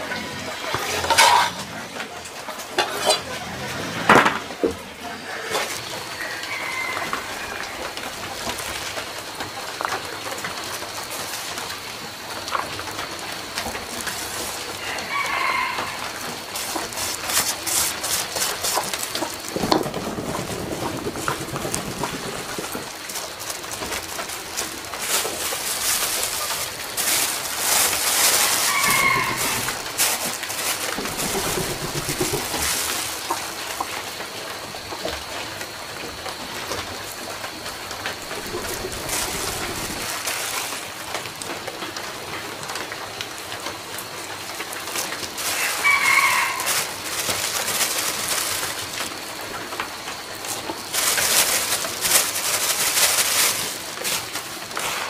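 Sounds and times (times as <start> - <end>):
chickens calling: 25.8 - 34.0, 38.2 - 40.2, 45.4 - 48.1.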